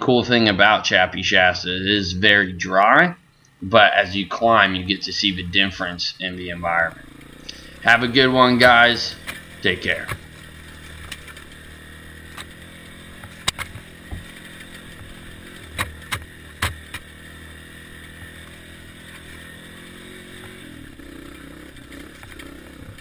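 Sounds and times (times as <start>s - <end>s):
dirt bike engine running: 0.0s - 23.0s
sharp knocks: 13.2s - 14.4s.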